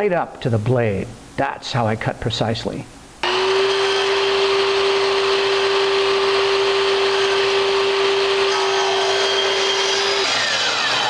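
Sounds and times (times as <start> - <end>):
miter saw motor whining: 3.2 - 11.0.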